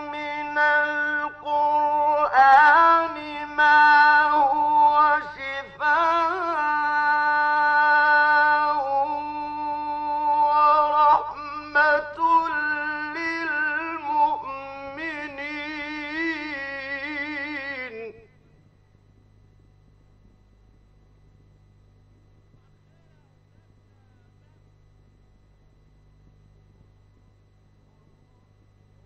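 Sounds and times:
man chanting recitation: 0.0s - 18.4s, 22.5s - 24.7s
steady low hum: 0.0s - 29.0s.

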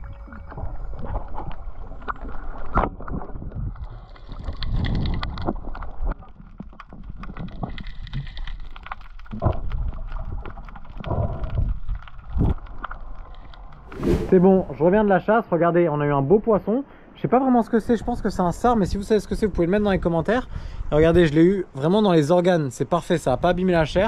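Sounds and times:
muffled underwater water rushing: 0.0s - 15.0s.

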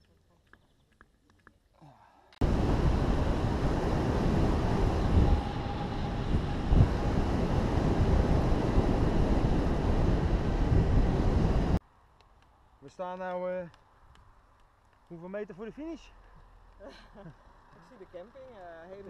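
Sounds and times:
wind rushing over microphone: 2.4s - 11.8s.

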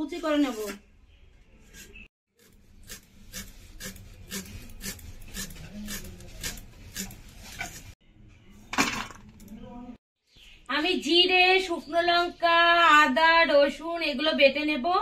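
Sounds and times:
knife chopping vegetables: 2.4s - 7.8s.

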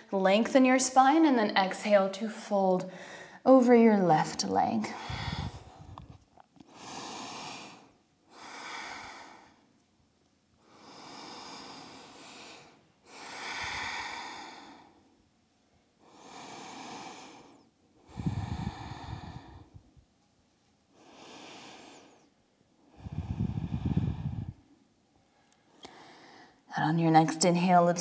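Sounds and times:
woman breathing deeply: 2.9s - 3.4s, 4.9s - 9.7s, 10.6s - 15.2s, 16.0s - 20.0s, 20.9s - 26.7s.

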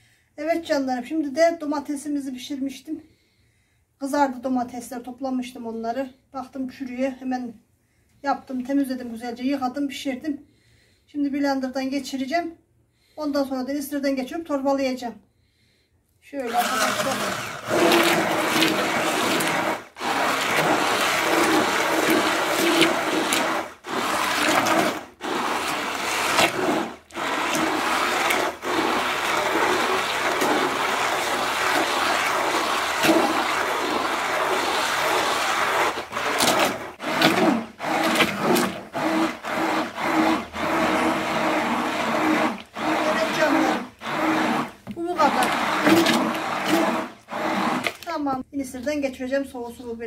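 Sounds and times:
immersion blender motor humming: 16.4s - 48.0s
sauce churning and sloshing: 16.5s - 48.2s.

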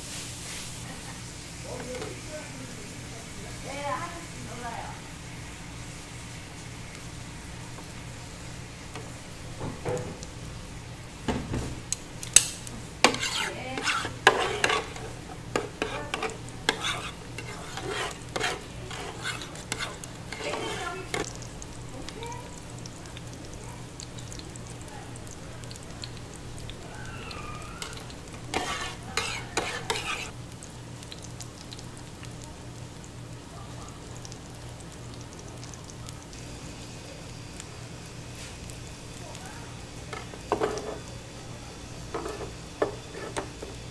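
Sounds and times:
egg sizzling: 0.0s - 43.9s
turners scraping on a griddle: 11.6s - 21.4s, 26.4s - 30.4s, 38.3s - 38.8s, 40.1s - 41.2s, 42.0s - 43.9s.

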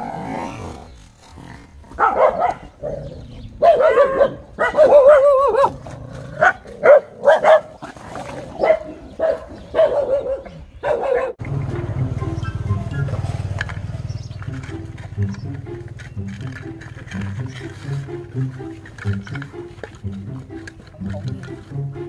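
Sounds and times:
dog barking and yelping: 2.0s - 3.0s, 3.6s - 5.8s, 6.4s - 7.8s, 8.6s - 11.4s.

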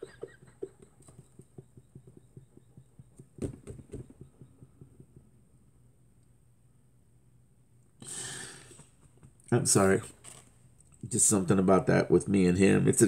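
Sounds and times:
man sobbing: 0.0s - 1.1s.

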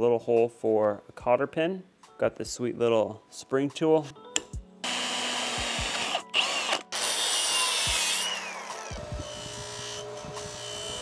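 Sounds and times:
electric drill whining: 4.8s - 11.0s.

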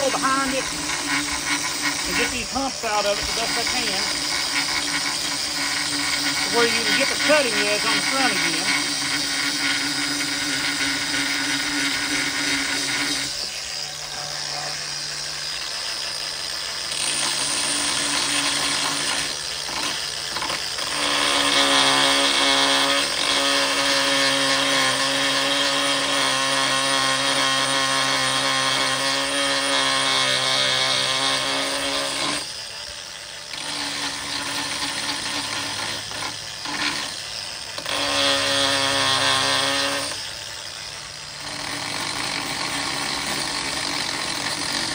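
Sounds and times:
angle grinder grinding metal: 0.0s - 44.9s.

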